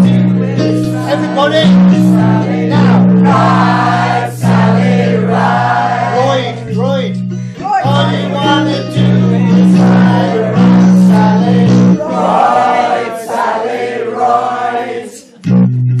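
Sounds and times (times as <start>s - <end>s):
instrumental accompaniment: 0.0s - 14.4s
women singing together: 1.9s - 6.2s, 9.4s - 15.3s.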